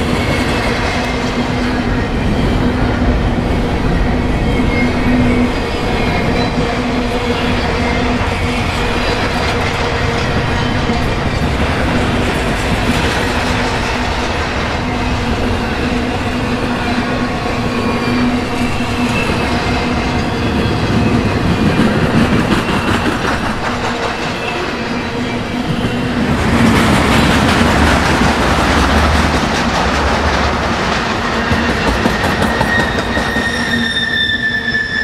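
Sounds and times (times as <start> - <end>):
train wheels clattering on rails: 7.5 - 34.0.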